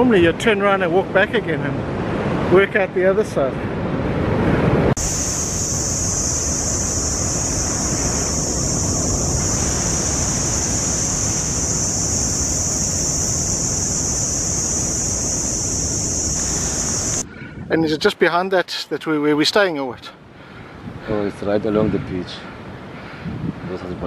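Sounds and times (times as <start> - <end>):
low rushing noise: 3.6 - 17.3
cicadas buzzing: 5.0 - 17.3.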